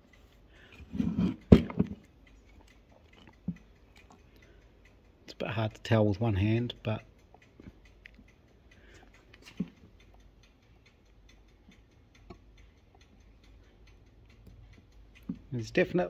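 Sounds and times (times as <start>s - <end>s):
faint even ticking: 0.0s - 16.0s
small metal clicks and knocks: 0.6s - 4.7s, 6.7s - 10.8s.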